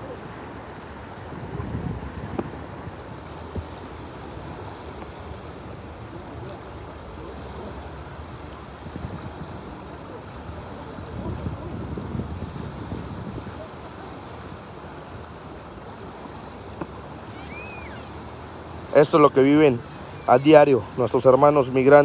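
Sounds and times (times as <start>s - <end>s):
river current rushing: 0.0s - 22.0s
wind buffeting microphone: 1.0s - 6.8s, 8.1s - 15.0s.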